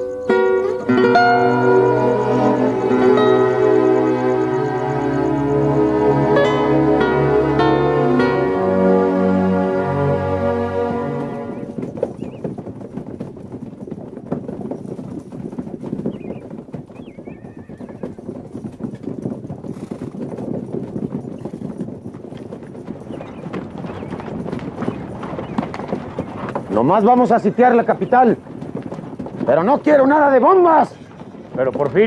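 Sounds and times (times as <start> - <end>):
horses hooves clip-clopping: 0.0 - 32.0
horse whinny: 17.1 - 18.4.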